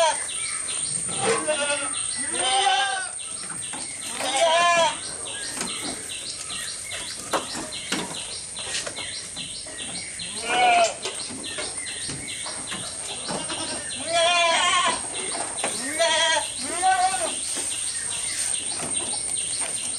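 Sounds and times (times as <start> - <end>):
goats bleating: 1.1 - 3.2, 4.0 - 5.1, 10.3 - 11.0, 13.2 - 15.1, 15.7 - 17.5.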